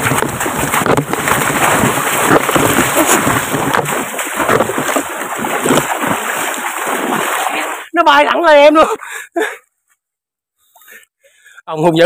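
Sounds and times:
water splashing from wading: 0.0s - 7.9s.

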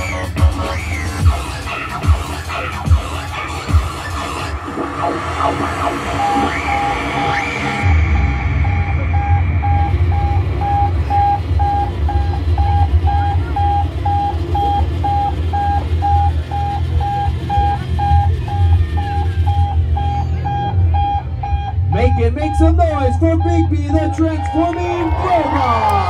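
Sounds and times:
loud low rumble: 3.9s - 26.0s
electronic warning beeps: 5.4s - 25.9s.

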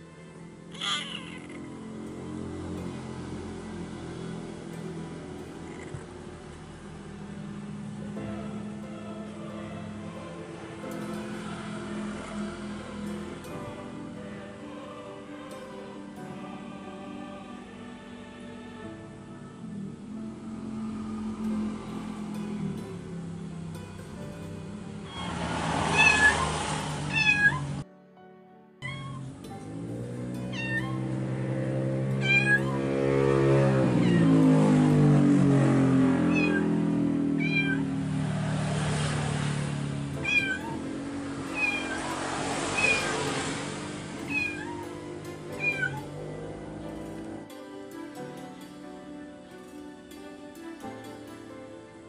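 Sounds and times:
soft background music: 0.0s - 52.0s
cat meowing: 0.7s - 1.8s, 25.9s - 26.5s, 27.1s - 27.8s, 28.8s - 29.3s, 30.4s - 31.1s, 32.2s - 32.9s, 33.8s - 34.8s, 36.2s - 37.9s, 40.2s - 42.1s, 42.8s - 43.4s, 44.2s - 46.1s.

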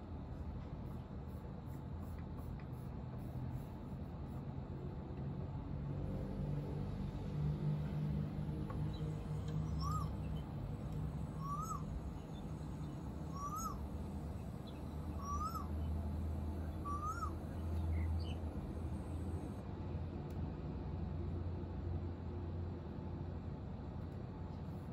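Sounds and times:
steady low hum: 0.0s - 24.9s
bird calling through speaker: 11.2s - 11.9s, 13.2s - 13.8s, 15.1s - 15.8s, 16.7s - 17.6s.

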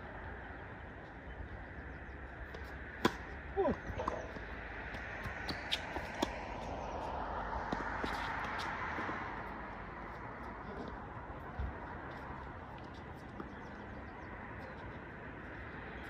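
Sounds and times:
tennis ball struck by racket: 2.6s - 4.4s.

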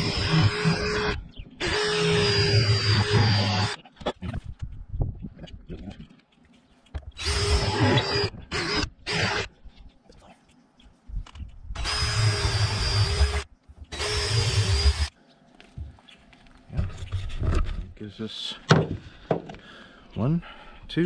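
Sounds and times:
cordless drill whining: 0.0s - 3.8s, 7.2s - 9.5s, 11.8s - 15.1s.

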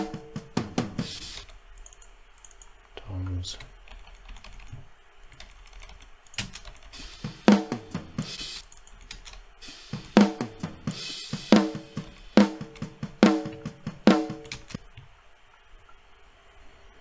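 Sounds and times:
drum and cymbal wash: 0.0s - 1.5s, 6.8s - 8.7s, 9.5s - 14.6s
snare drum hits: 9.9s - 14.5s.

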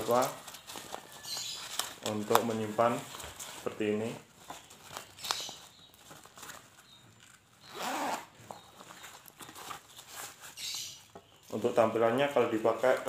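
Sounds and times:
small clicks and rustling of bag: 0.0s - 3.6s
bag zipper being pulled: 7.7s - 8.3s.

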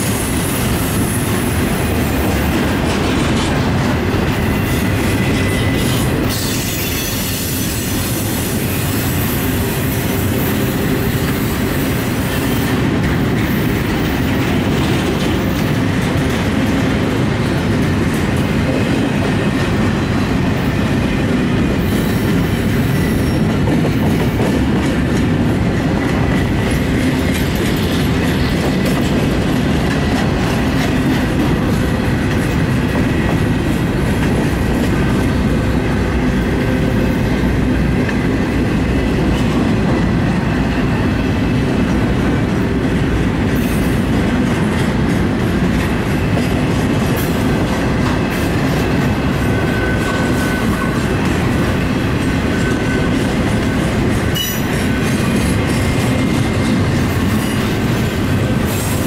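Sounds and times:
train wheels rumbling on rail: 0.0s - 59.0s
wheels clacking over rail joints: 0.0s - 59.0s
high wheel squeal: 4.3s - 12.6s, 21.8s - 23.5s, 49.3s - 56.6s.

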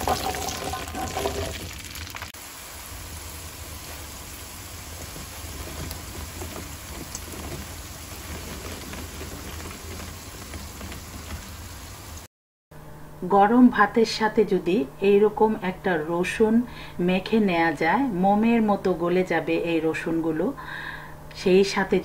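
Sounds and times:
garlic and chillies sizzling in oil: 0.0s - 12.3s.

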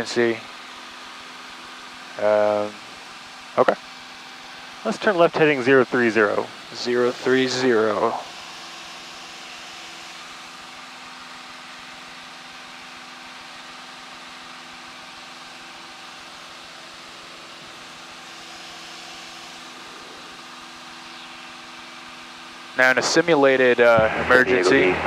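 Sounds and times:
light aircraft engine and propeller drone: 0.0s - 25.0s
steady tones: 22.7s - 25.0s.

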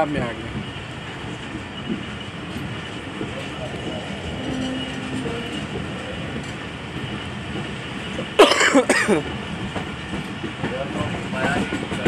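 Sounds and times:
train coach rumbling on rails: 0.0s - 12.0s
person coughing loudly: 8.4s - 9.2s.

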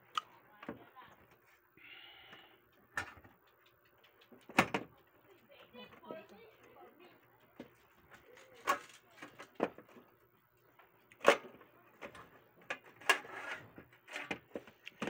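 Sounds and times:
metal clanks and scrapes: 13.0s - 14.4s.

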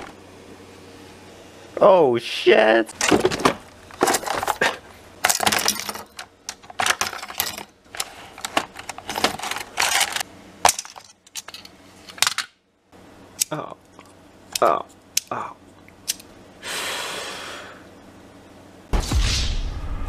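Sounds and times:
memory modules clattering in plastic bin: 3.0s - 12.5s.

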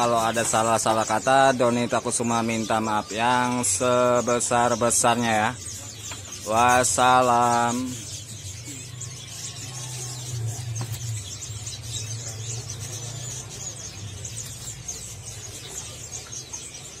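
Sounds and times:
songbirds chirping and twittering: 0.0s - 17.0s.

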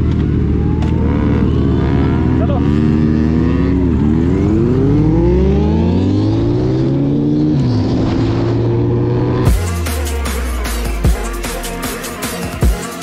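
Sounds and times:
motorcycle engine accelerating: 0.0s - 9.7s.

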